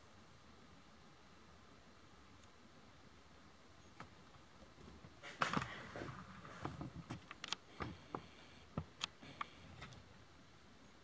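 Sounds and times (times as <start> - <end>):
sharp clicks and light knocks: 6.6 - 10.0.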